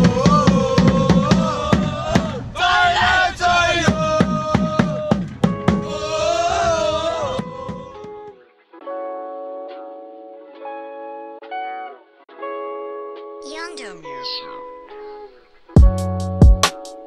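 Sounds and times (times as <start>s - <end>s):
crowd chanting in unison: 0.0s - 8.3s
drum beating fast rhythm: 15.8s - 17.0s.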